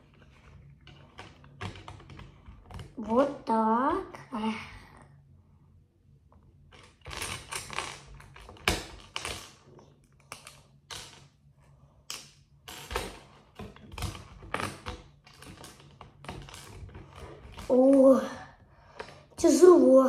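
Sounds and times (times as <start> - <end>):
plastic bricks clattering: 12.7 - 18.1.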